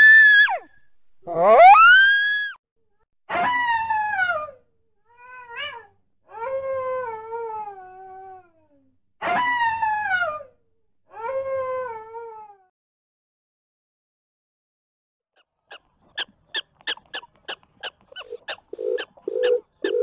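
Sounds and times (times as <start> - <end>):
coyote howling: 1.3 - 2.4.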